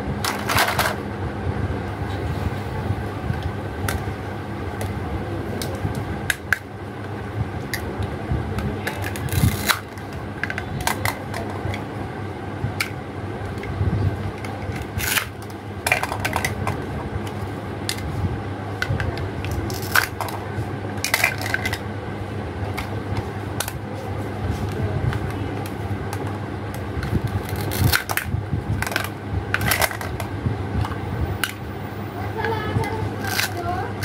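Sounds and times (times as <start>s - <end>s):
steady low hum: 0.0s - 34.0s
plastic toy pieces clicking: 27.4s - 30.2s, 33.2s - 33.6s.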